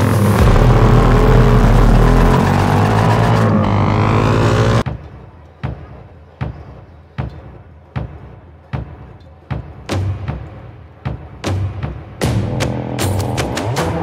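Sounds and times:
racing motorcycle engines revving: 0:00.0 - 0:04.9
deep thumping beat: 0:00.0 - 0:14.0.

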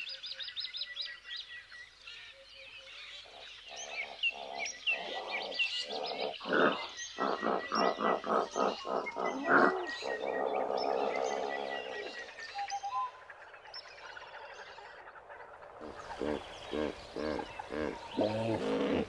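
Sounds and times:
hippopotamus grunting honks: 0:06.4 - 0:12.0, 0:15.8 - 0:19.0.

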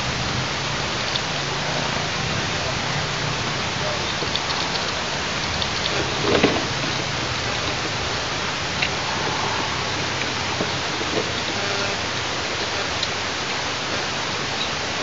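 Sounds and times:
wind hissing on microphone: 0:00.0 - 0:15.0
faint crackles and rustles: 0:03.8 - 0:14.8.

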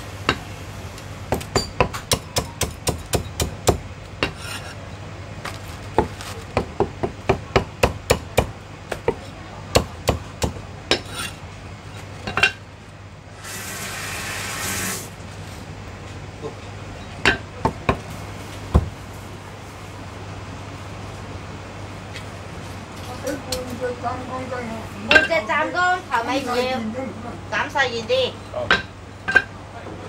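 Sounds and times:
cleaver chopping on wooden block: 0:01.3 - 0:04.5
rustling and scraping: 0:04.2 - 0:04.8, 0:05.4 - 0:06.6, 0:11.0 - 0:12.4.

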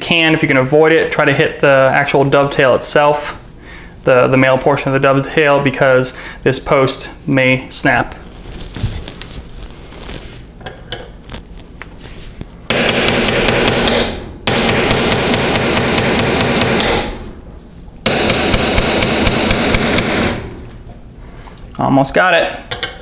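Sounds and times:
hammer tapping a brass punch: 0:12.7 - 0:17.0, 0:18.1 - 0:20.3.

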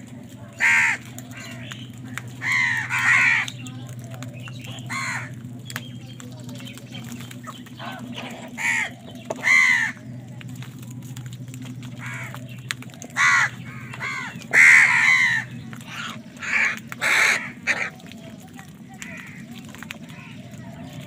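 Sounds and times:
steady low hum: 0:00.0 - 0:21.0
crows cawing: 0:00.4 - 0:05.5, 0:07.8 - 0:10.1, 0:11.9 - 0:21.0.

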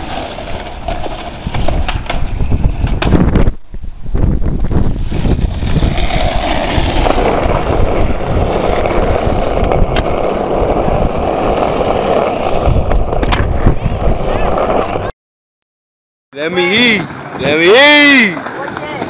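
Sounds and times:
skateboard wheels rolling on asphalt: 0:00.0 - 0:15.1, 0:16.4 - 0:19.0
wind buffeting microphone: 0:00.0 - 0:15.1
skateboard clicks: 0:00.4 - 0:03.2, 0:17.0 - 0:19.0.

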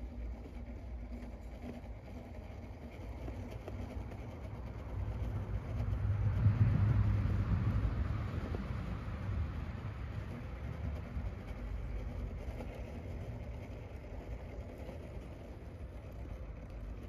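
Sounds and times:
electric motor and drivetrain whirring: 0:00.0 - 0:17.0
low rumble: 0:05.8 - 0:11.9.

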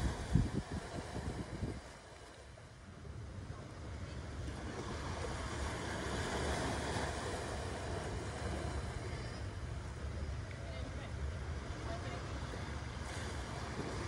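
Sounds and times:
wind rumble on microphone: 0:00.0 - 0:10.2
small waves on sandy beach: 0:00.0 - 0:14.0.

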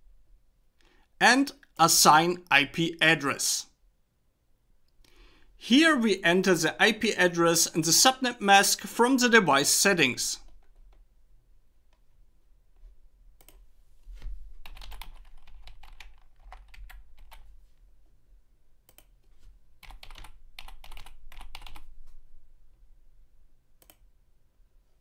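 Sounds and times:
typing on computer keyboard: 0:14.6 - 0:17.5, 0:19.8 - 0:21.9.

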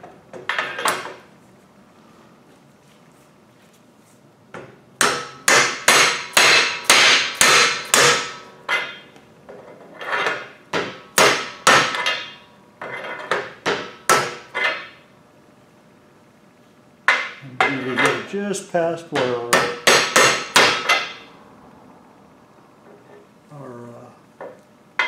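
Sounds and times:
mallet striking metal: 0:05.0 - 0:09.0.

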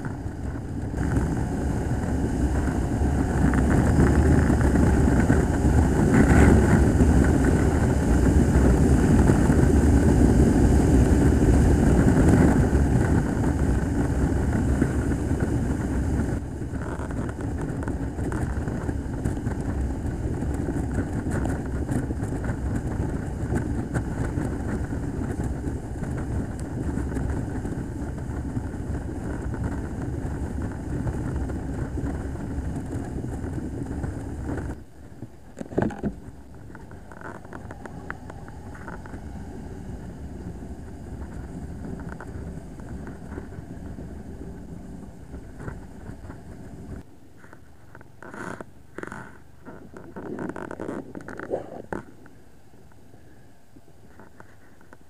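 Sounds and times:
motorcycle engine: 0:00.0 - 0:47.0
wind noise: 0:00.0 - 0:55.0.

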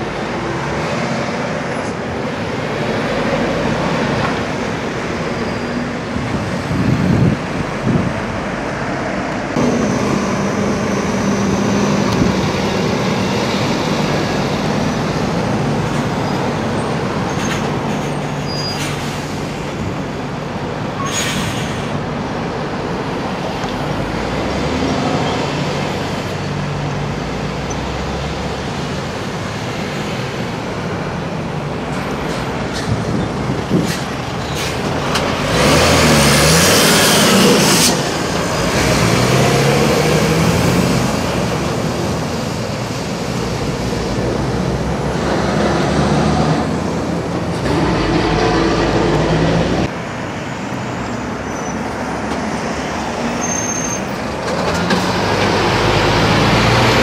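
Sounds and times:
lorry diesel engines: 0:00.0 - 0:57.0
traffic passing: 0:00.0 - 0:57.0
loud air brake hiss: 0:18.0 - 0:19.8, 0:21.0 - 0:22.0, 0:33.8 - 0:34.9.

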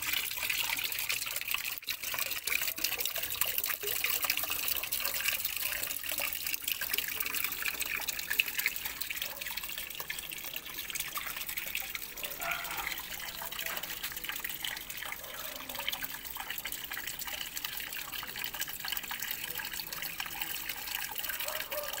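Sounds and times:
water trickling into pond: 0:00.0 - 0:22.0.

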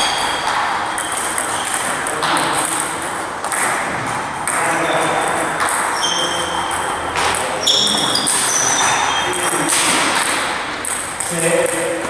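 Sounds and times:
ping-pong balls clicking: 0:00.0 - 0:12.0
sports hall background noise: 0:00.0 - 0:12.0.

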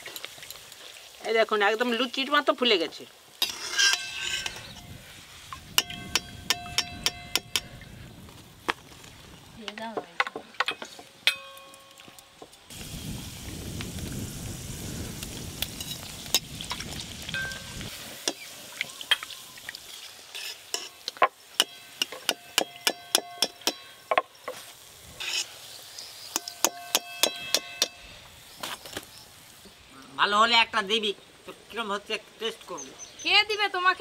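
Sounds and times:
frying in hot oil: 0:00.0 - 0:09.9, 0:12.6 - 0:34.0
metal spoon clinking on pan: 0:05.8 - 0:07.7, 0:10.6 - 0:12.1.

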